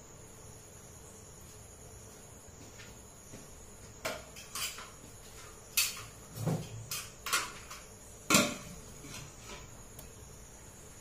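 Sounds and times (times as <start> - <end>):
metal utensils and pans clinking: 4.3 - 5.0.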